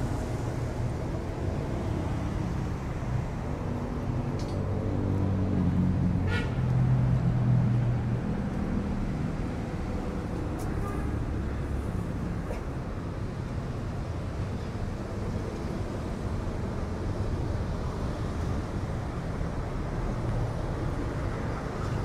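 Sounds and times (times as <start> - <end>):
road traffic passing: 0.0 - 22.0.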